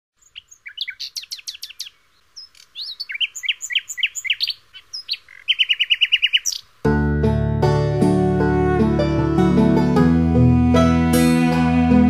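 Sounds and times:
songbirds chirping: 0:00.1 - 0:06.9.

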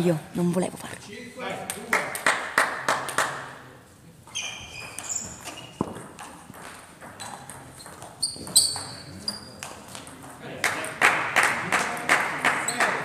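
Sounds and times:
shoes squeaking on floor: 0:04.2 - 0:10.3, 0:12.6 - 0:13.0.

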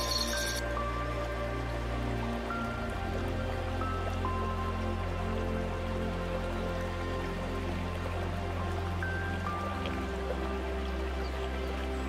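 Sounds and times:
calm ambient music: 0:00.0 - 0:12.0
soft patter of water: 0:00.0 - 0:12.0
steady low drone: 0:00.0 - 0:12.0.

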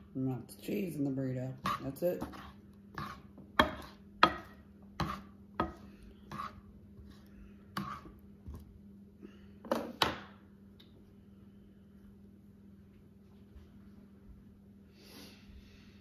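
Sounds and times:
low steady hum: 0:00.0 - 0:16.0
spatula scraping frying pan: 0:01.6 - 0:04.1, 0:05.0 - 0:08.2.

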